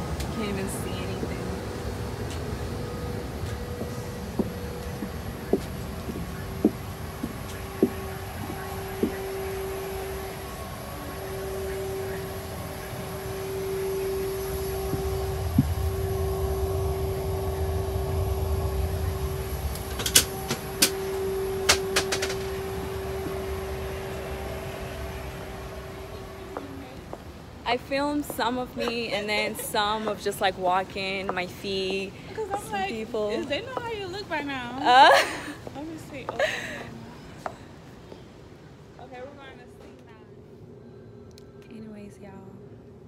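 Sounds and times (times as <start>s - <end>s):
low rumble: 0.0s - 31.2s
airliner cabin systems hum: 0.0s - 43.0s.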